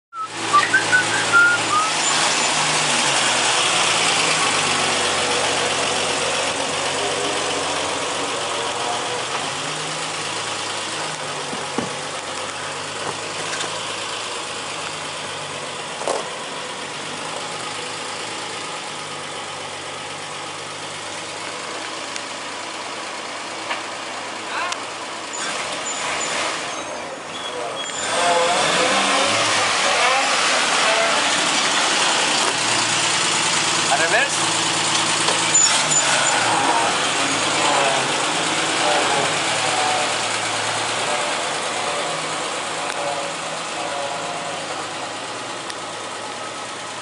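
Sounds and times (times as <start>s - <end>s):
truck engine idling: 0.2s - 26.2s, 30.3s - 47.0s.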